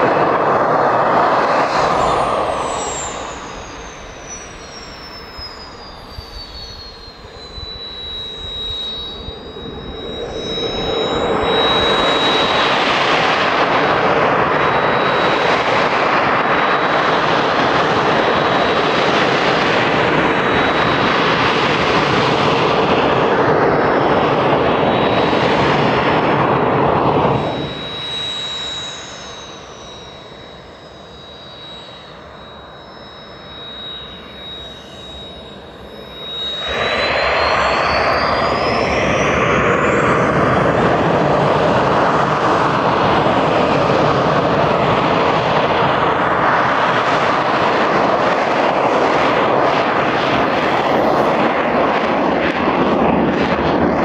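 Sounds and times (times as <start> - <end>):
falling whistle: 0.0 - 54.0
jet engine whine: 0.0 - 54.0
jet noise rush: 0.0 - 54.0.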